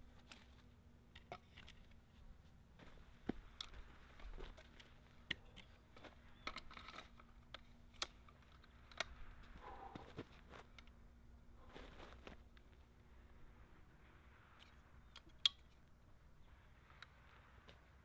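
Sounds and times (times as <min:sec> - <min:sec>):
faint steady hum: 0:00.0 - 0:18.0
clicks and knocks of handling gear: 0:00.1 - 0:02.2, 0:02.8 - 0:11.0.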